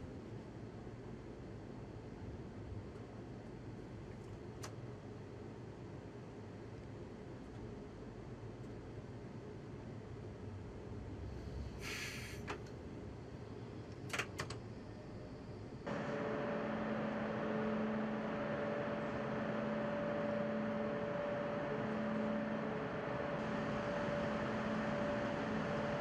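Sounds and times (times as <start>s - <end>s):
electric train hum and whir: 0.0s - 26.0s
pulsing held tone: 15.9s - 26.0s.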